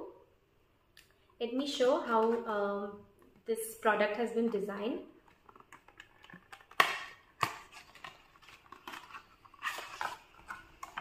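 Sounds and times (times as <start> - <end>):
light tapping and handling noise: 5.2 - 11.0
cardboard carton snapping open: 6.7 - 8.0.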